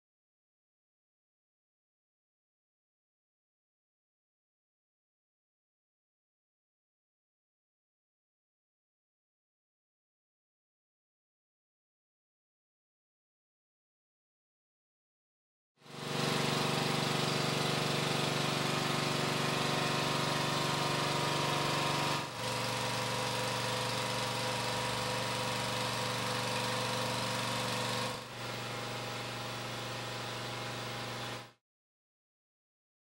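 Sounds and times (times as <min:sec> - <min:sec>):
motor humming: 0:15.9 - 0:31.6.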